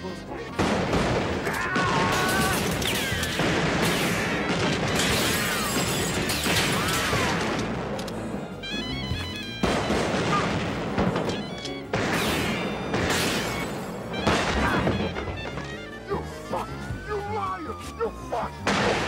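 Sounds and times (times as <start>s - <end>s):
dramatic orchestral music: 0.0s - 19.0s
gunfire: 0.5s - 8.2s, 9.6s - 15.7s, 18.6s - 19.0s.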